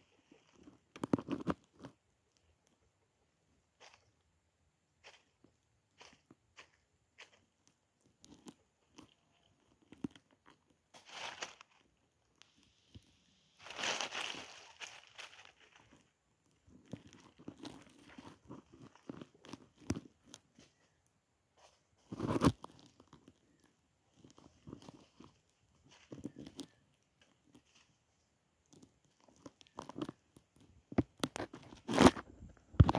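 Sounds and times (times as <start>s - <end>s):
dry leaves crunching and rustling: 11.0s - 11.8s, 13.6s - 16.0s.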